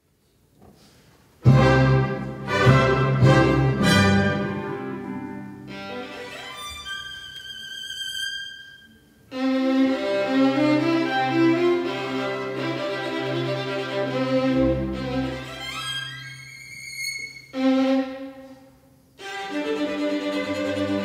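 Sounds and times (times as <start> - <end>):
orchestra string chords: 1.4 - 6.5, 9.3 - 15.8
solo violin: 5.5 - 21.0.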